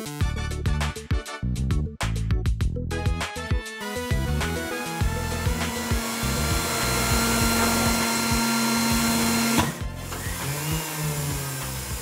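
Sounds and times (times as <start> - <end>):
grinding wheel hissing and whining: 4.5 - 12.0.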